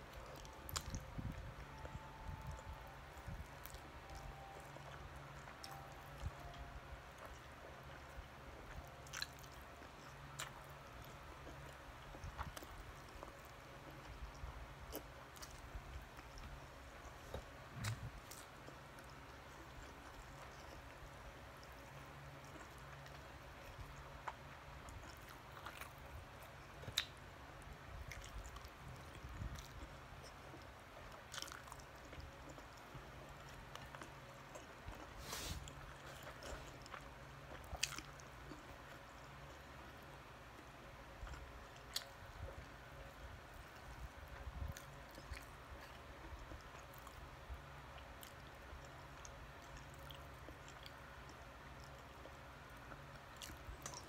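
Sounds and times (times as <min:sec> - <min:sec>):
low steady hum: 0:00.0 - 0:54.0
mouth chewing: 0:28.0 - 0:40.0.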